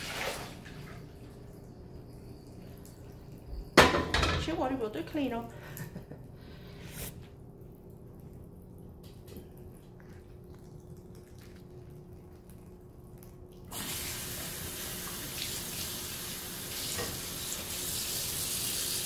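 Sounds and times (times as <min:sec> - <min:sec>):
water running into sink: 0:00.0 - 0:05.3, 0:13.7 - 0:19.0
faint low hum: 0:00.2 - 0:13.8
faucet turning on: 0:13.7 - 0:19.0.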